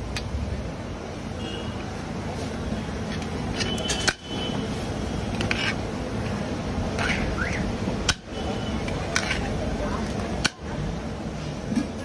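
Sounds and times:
street noise hum: 0.0s - 12.0s.

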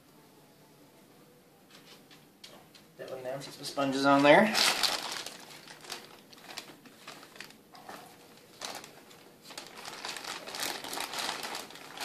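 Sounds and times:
plastic bag crinkling: 3.7s - 12.0s.

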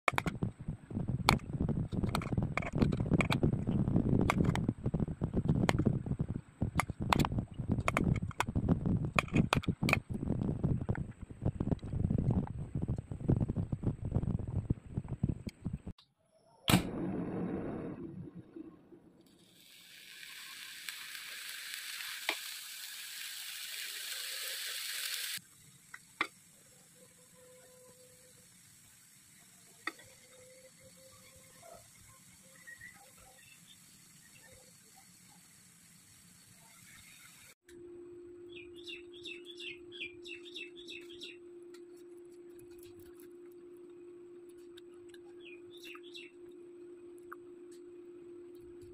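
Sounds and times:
low steady rumble: 0.2s - 16.0s, 16.8s - 19.2s
high hiss from cooking pot: 19.3s - 37.6s.

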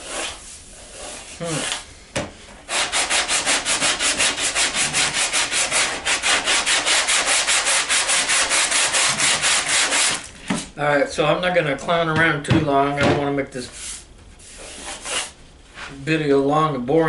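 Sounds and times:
sandpaper scrubbing back and forth: 0.0s - 1.8s, 2.7s - 10.2s, 13.7s - 15.4s.

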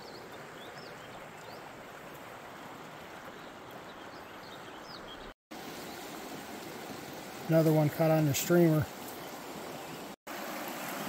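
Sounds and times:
river rushing over riffles: 5.5s - 11.0s.

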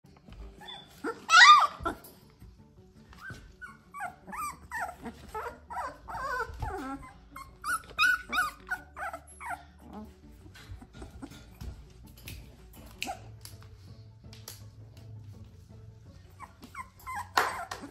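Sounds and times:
puppies whining and yelping: 0.4s - 2.2s, 3.1s - 11.8s, 16.3s - 17.9s.

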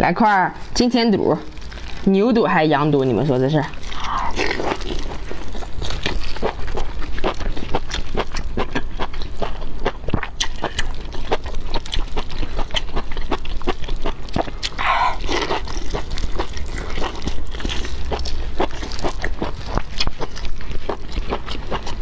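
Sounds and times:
steady low hum: 0.0s - 22.0s
wet chewing and biting: 3.1s - 22.0s
breathy mouth sound: 14.6s - 15.4s.

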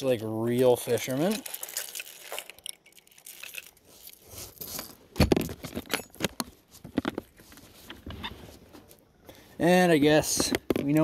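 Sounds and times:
fishing lures clicking and rattling: 0.8s - 4.2s.

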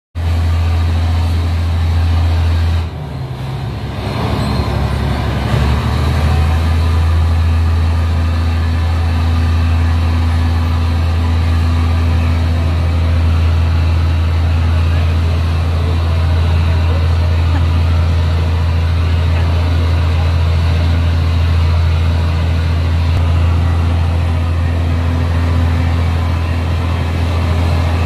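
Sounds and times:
diesel engine drone: 0.2s - 28.0s.

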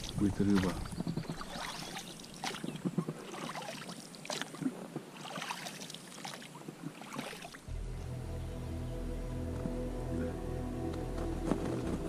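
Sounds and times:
water lapping against boat: 0.0s - 7.7s.

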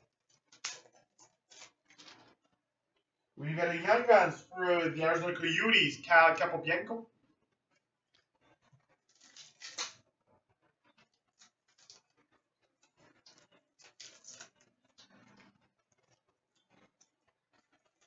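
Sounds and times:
trading cards rustling and clicking: 0.2s - 2.4s, 9.1s - 10.0s, 11.1s - 12.2s, 12.8s - 15.4s.

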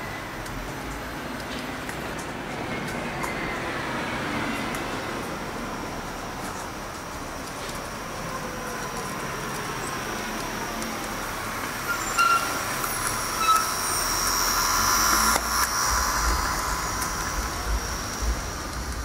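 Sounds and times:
electric motors whining: 8.1s - 19.0s
short squeaks: 11.8s - 12.6s, 13.3s - 14.0s
low rumble: 14.0s - 19.0s.

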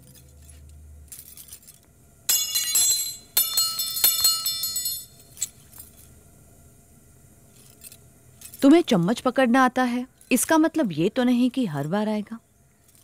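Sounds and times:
metal spoons clinking: 0.0s - 5.9s.

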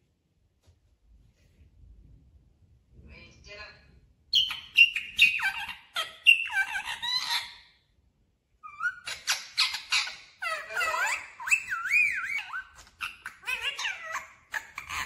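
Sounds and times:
parakeet chattering squawks: 4.3s - 7.7s, 8.7s - 15.0s.

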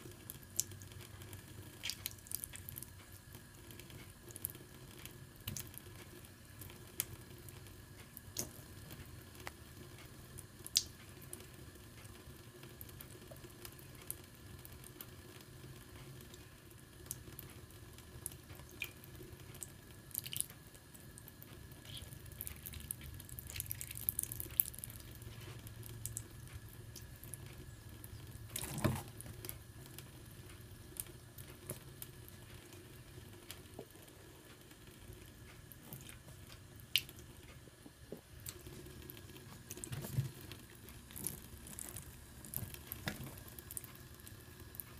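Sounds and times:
kitten lapping water: 0.0s - 5.9s, 17.0s - 30.0s, 35.1s - 37.4s, 38.4s - 44.9s.

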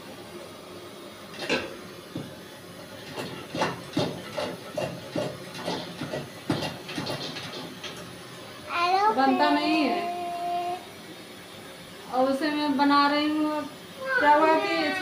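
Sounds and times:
stove burner hissing: 0.0s - 15.0s
short knocks and clatters: 3.0s - 8.1s.

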